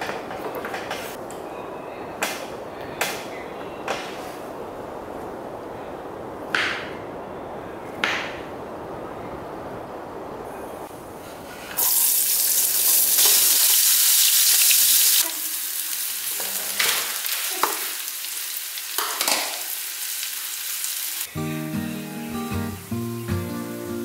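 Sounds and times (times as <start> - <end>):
food sizzling in hot oil: 11.8 - 21.3.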